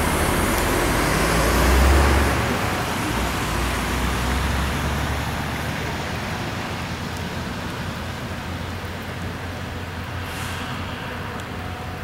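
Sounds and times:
train rolling past: 9.4s - 12.0s.

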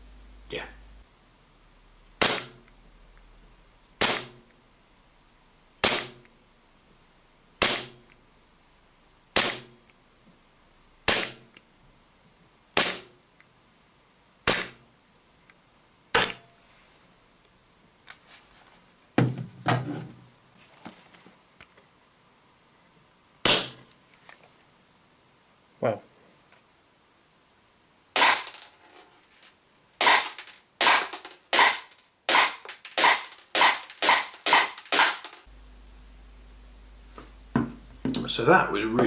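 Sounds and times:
airsoft pistol shots: 2.2s - 2.6s, 4.0s - 4.4s, 5.8s - 6.2s, 7.6s - 8.0s, 9.4s - 9.8s, 11.1s - 11.5s, 12.8s - 13.1s, 14.4s - 14.8s, 16.1s - 16.4s, 23.4s - 23.8s, 28.2s - 28.6s, 30.0s - 35.4s
pistol slide clack: 30.0s - 35.4s.

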